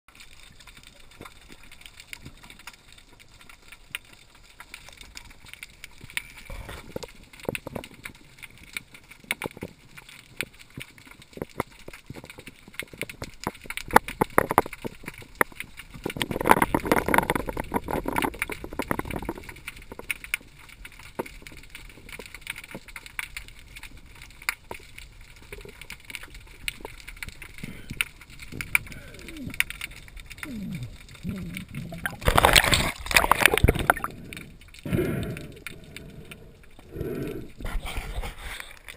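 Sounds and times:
underwater clicks and knocks: 0.2 - 38.9
rushing water surge: 32.0 - 34.1.

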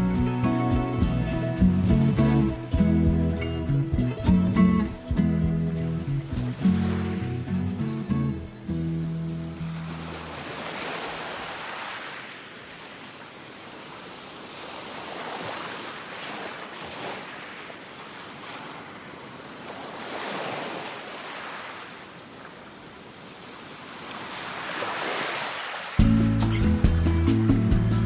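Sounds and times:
music: 0.0 - 10.4, 26.0 - 28.0
small waves breaking on sand: 9.4 - 26.0.

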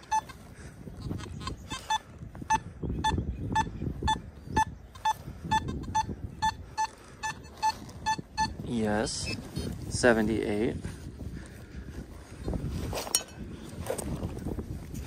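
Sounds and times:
metal detector beeping: 0.0 - 0.5, 1.1 - 9.7.

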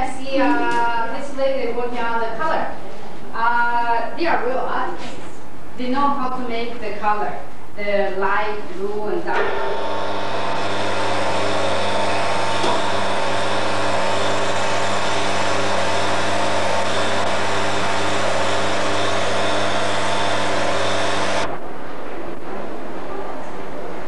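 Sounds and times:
lathe motor hum: 9.4 - 21.5
grinding hiss: 9.5 - 21.5.

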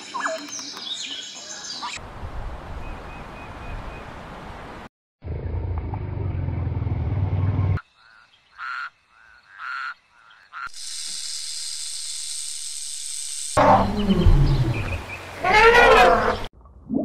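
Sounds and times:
crocodile growling low: 13.6 - 17.0.

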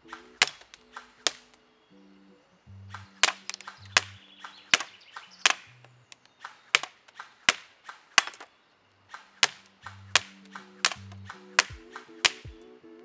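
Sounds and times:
airsoft rifle shots: 6.4 - 8.5, 9.1 - 12.6.

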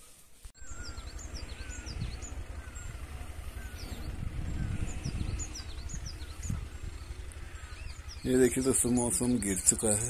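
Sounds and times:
low uneven rumble: 0.6 - 10.0
small birds calling: 0.6 - 10.0.

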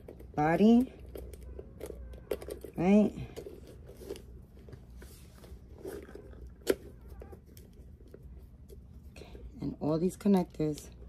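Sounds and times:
plastic parts clicking and rustling: 0.0 - 8.8.

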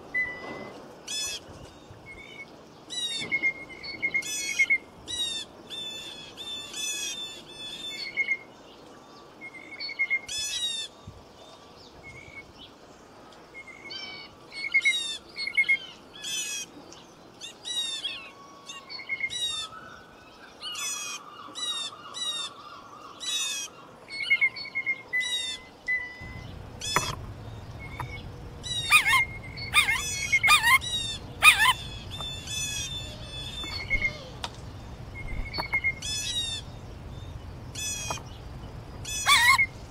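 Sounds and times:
birds chirping: 0.0 - 39.9
low steady rushing noise: 26.2 - 39.9.

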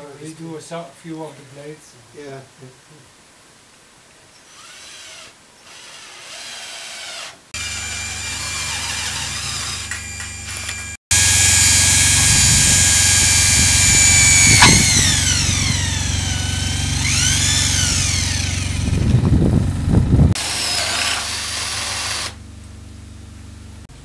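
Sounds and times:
cordless drill drilling into wood: 4.5 - 19.1, 20.4 - 22.4
electric drill whining through steel: 4.5 - 19.3, 20.4 - 22.4
drill rattling: 4.5 - 19.4, 20.4 - 22.4.

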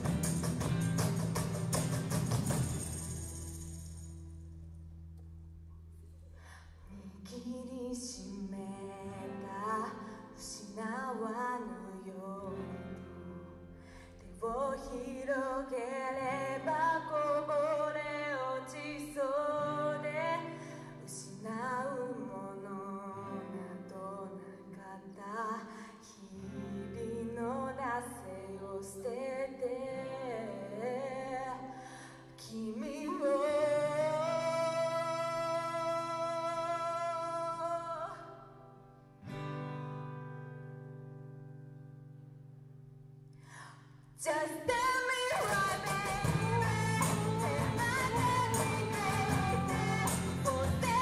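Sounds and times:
cajon hits: 0.0 - 3.6, 45.3 - 51.0
tambourine hits: 0.0 - 4.4, 45.5 - 51.0
bass: 0.0 - 8.5, 44.7 - 51.0
acoustic guitars: 0.0 - 51.0
girl singing: 6.9 - 12.8, 14.3 - 31.7, 32.3 - 38.4, 44.2 - 51.0.

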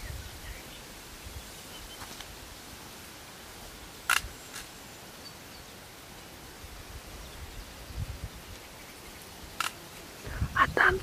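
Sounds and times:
outdoor background hiss: 0.0 - 11.0
sharp click: 4.1 - 4.7.

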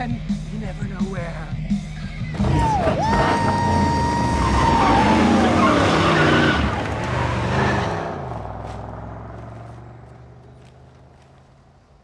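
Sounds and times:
car engine driving off: 2.3 - 11.9
tire squeal: 2.4 - 9.8.

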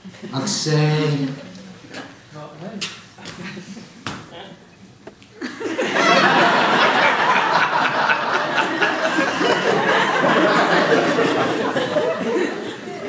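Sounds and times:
audience laughing: 5.4 - 13.0.

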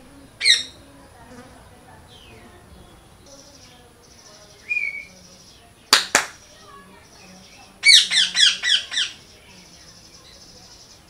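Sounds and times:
buzzing insect-like trill: 0.0 - 2.6
parrot screeching: 0.4 - 0.8, 7.8 - 9.2.

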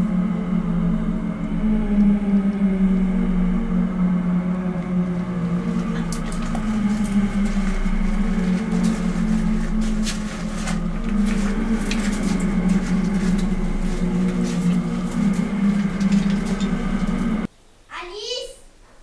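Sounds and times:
steady low hum: 0.0 - 17.9.

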